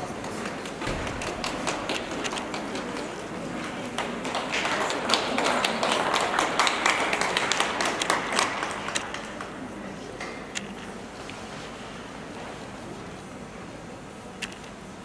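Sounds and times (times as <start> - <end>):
scattered applause: 0.0 - 10.6.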